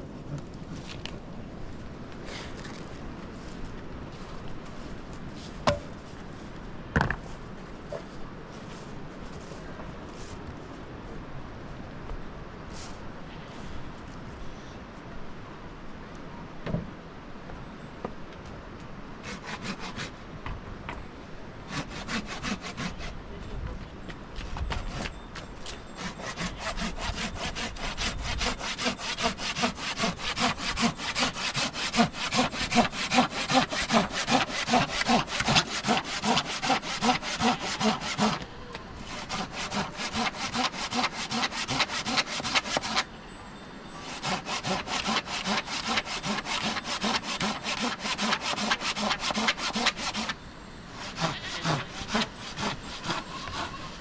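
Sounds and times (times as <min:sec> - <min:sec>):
rhythmic rasping strokes: 0:25.9 - 0:38.4, 0:44.0 - 0:50.4.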